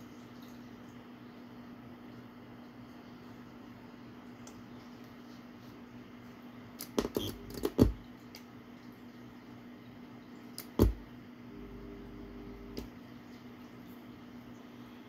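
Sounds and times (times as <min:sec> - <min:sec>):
faint steady tone: 0:11.5 - 0:15.0.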